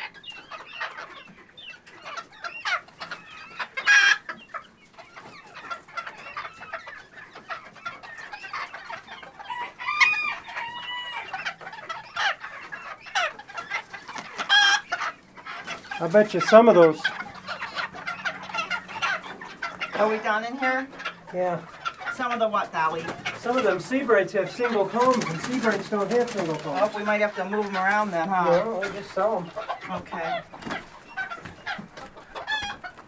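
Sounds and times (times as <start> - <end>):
chickens clucking: 0.0 - 33.0
rooster crowing: 9.5 - 11.3.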